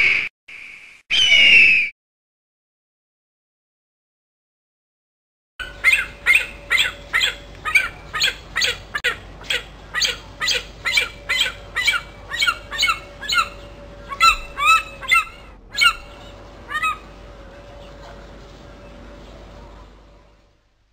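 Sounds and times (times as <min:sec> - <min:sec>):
vulture squawking: 0:05.6 - 0:18.2.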